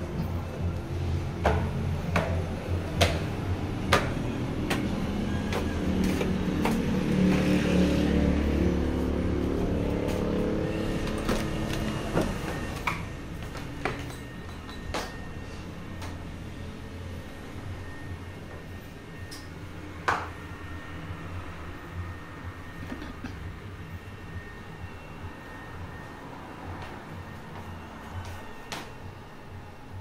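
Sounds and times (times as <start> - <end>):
vehicle engine rumbling: 0.0 - 30.0
footsteps knocking: 3.9 - 7.5, 12.2 - 15.2.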